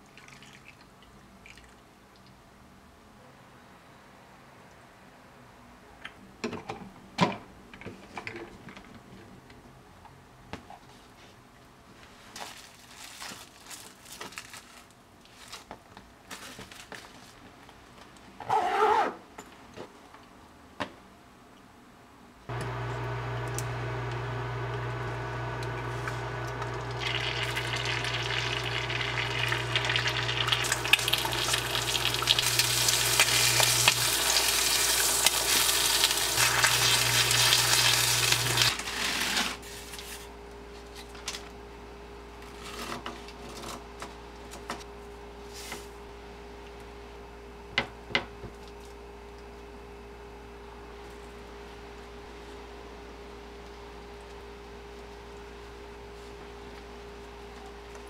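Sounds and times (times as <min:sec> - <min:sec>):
eggs sizzling in a pan: 0:22.5 - 0:38.8.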